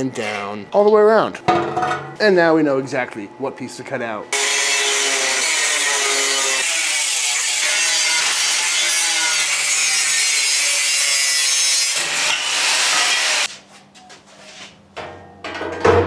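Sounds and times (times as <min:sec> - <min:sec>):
angle grinder cutting steel pipe: 0:04.4 - 0:13.5.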